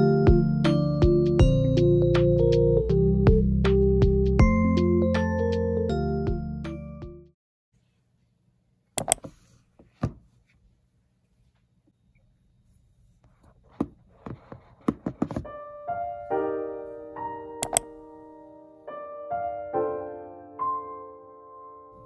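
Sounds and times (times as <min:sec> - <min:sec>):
soft piano music: 0:00.0 - 0:07.3, 0:15.4 - 0:22.0
packaging clicks and knocks: 0:13.7 - 0:15.5.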